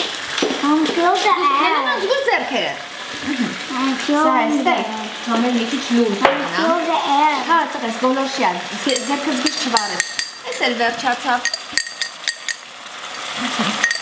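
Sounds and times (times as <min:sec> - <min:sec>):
vegetables sizzling in a pan: 0:00.0 - 0:14.0
utensils clinking against pan: 0:08.8 - 0:14.0.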